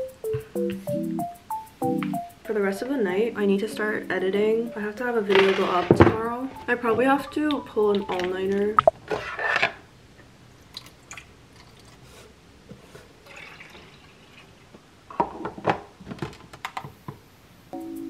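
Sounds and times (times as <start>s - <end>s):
water dripping and trickling: 6.6s - 9.0s, 10.7s - 12.0s.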